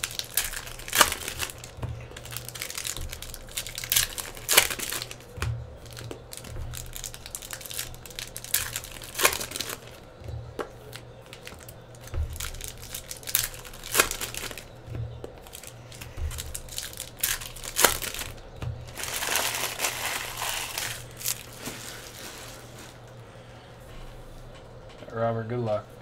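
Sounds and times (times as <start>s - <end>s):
plastic wrapper crinkling and tearing: 0.0s - 10.1s, 10.8s - 23.2s.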